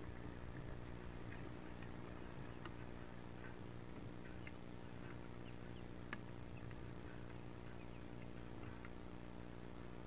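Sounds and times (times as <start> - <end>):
ducklings peeping: 0.0 - 10.0
steady low hum: 0.0 - 10.0.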